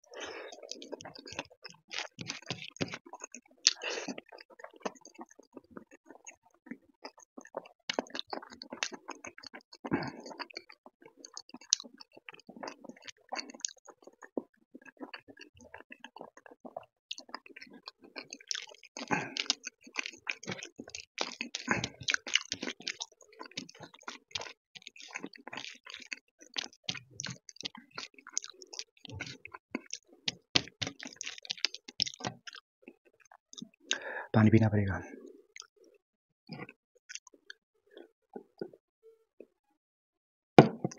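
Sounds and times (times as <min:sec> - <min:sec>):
wet chewing and lip-smacking: 0:00.0 - 0:34.1, 0:35.2 - 0:38.8
fingers squishing food on plate: 0:00.2 - 0:04.2, 0:15.0 - 0:32.6
mouth clicks: 0:03.6 - 0:04.2.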